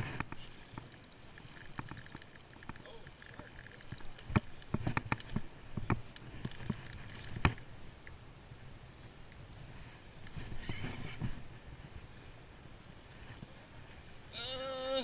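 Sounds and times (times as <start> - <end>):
low steady hiss: 0.0 - 15.0
fishing reel and rod clicks: 0.1 - 8.2.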